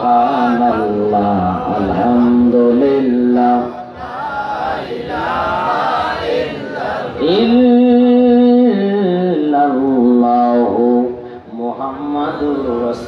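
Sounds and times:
men chanting together: 0.0s - 7.6s.

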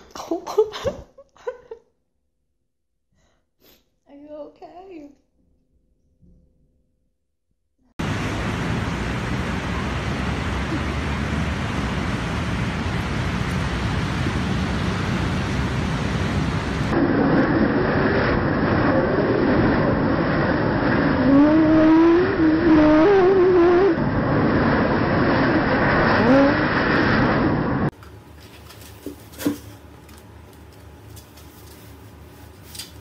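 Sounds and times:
leaf blower running: 8.0s - 17.0s
steady rushing noise: 8.0s - 27.9s
wavering pitched sound: 21.2s - 24.1s.

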